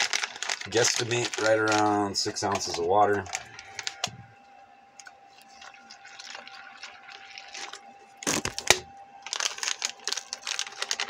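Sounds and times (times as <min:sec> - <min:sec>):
plastic pouch crinkling: 0:00.0 - 0:04.2, 0:05.0 - 0:11.0
water trickling into pouch: 0:05.4 - 0:08.4.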